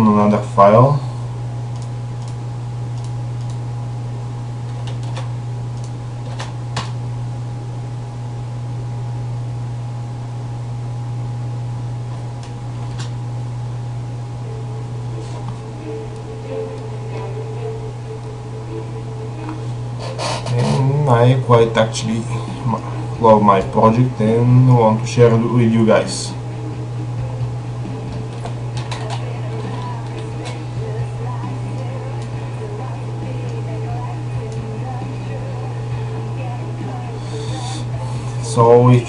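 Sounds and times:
electrical hum with whine: 0.0 - 39.0
sharp clicks: 1.7 - 3.6
faint wavering tones: 13.8 - 23.3.

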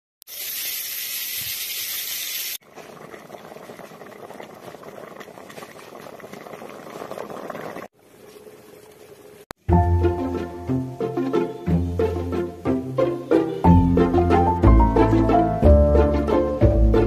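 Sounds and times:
loud steady hiss: 0.3 - 2.6
pot of greens boiling: 2.3 - 9.5
curry bubbling and popping: 2.6 - 9.2.

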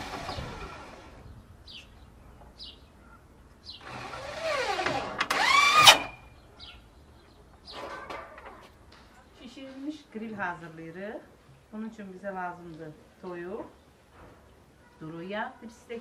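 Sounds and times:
small birds chirping: 0.0 - 4.1, 6.2 - 10.0.

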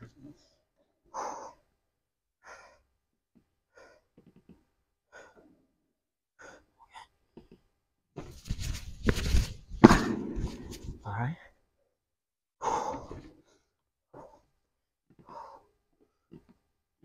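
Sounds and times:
man breathing: 2.4 - 2.9, 5.0 - 5.7, 12.6 - 14.5, 15.2 - 15.8
jump thuds on wooden box: 9.8 - 10.6.

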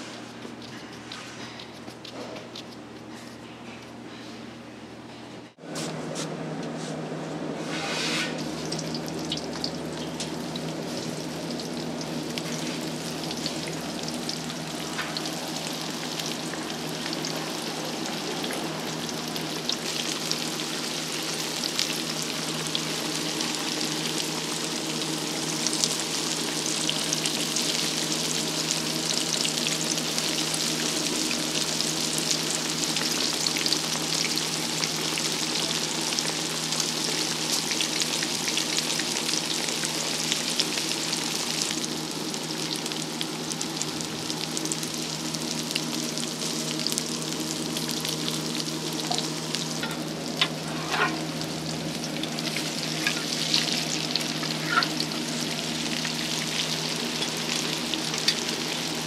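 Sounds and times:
dough deep-frying in oil: 7.6 - 59.0.

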